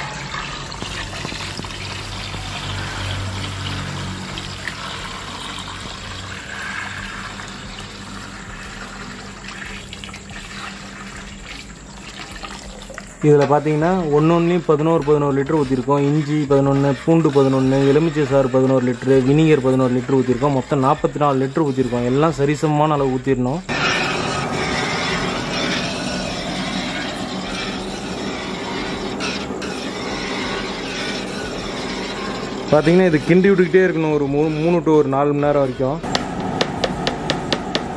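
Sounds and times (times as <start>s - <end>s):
liquid pouring: 0.0s - 21.0s
wok cooking over burner: 0.0s - 22.6s, 23.5s - 34.6s, 35.8s - 37.9s
low hum: 23.7s - 34.3s.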